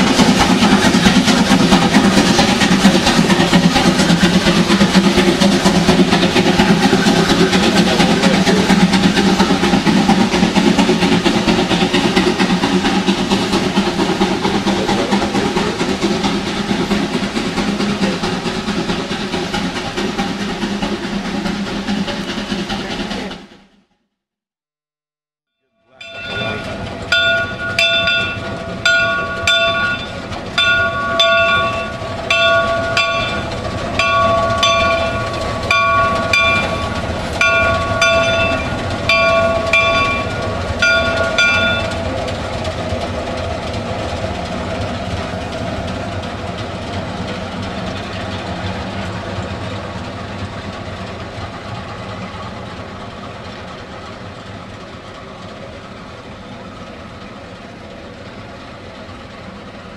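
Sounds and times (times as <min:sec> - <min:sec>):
steam locomotive working noise: 0:00.0 - 0:23.8, 0:25.8 - 0:59.9
locomotive bell ringing: 0:25.8 - 0:42.6.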